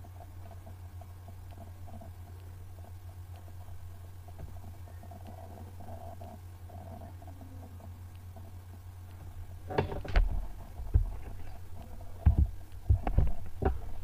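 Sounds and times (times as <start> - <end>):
steady low hum: 0.0 - 14.0
dull thumps and knocks: 9.7 - 11.5, 12.1 - 14.0.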